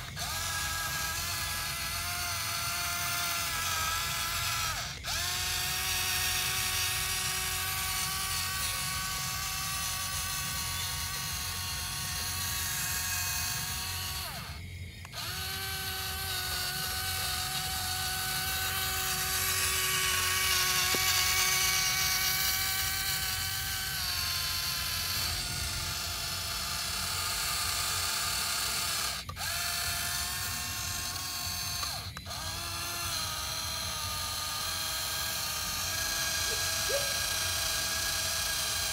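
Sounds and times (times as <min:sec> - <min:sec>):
gearbox buzz: 0:00.0 - 0:38.9
small electric motor whining: 0:00.0 - 0:38.9.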